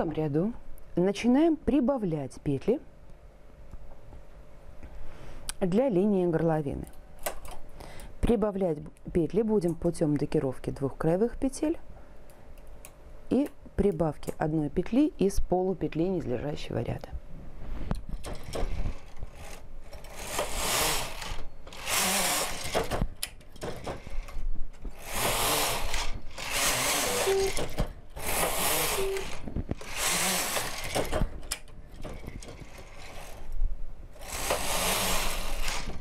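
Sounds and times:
knitting machine carriage swishing: 23.8 - 33.5, 34.2 - 36.0.

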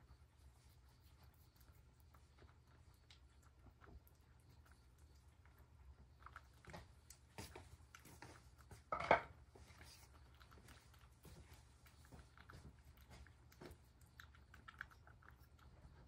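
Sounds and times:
cat chewing: 0.0 - 16.0
knock on ceramic bowl: 8.9 - 9.3.

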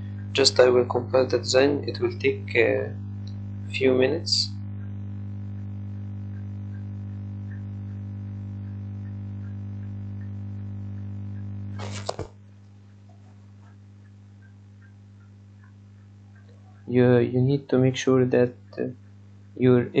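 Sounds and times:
steady low hum: 0.0 - 20.0
short rustle or bump: 11.8 - 12.4.

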